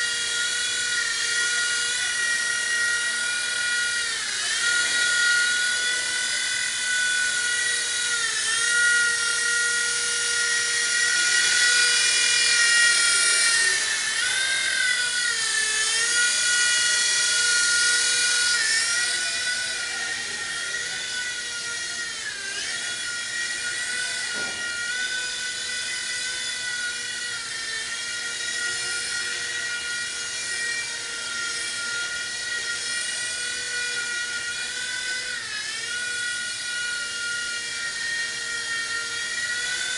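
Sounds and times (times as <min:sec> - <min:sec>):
toy helicopter motor whine: 0:00.0 - 0:39.9.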